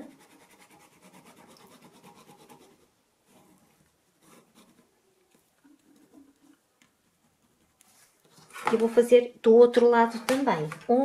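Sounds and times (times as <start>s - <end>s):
marker scratching on fabric: 0.0s - 5.0s, 5.6s - 8.3s
soft rustles and taps: 7.8s - 9.1s.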